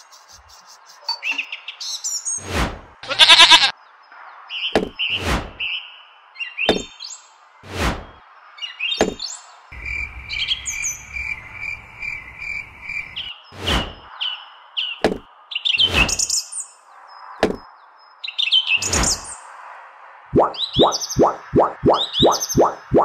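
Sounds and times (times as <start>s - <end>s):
birds chirping: 3.0s - 7.2s, 8.0s - 19.4s, 20.4s - 23.0s
rapid bird trill: 20.4s - 23.0s.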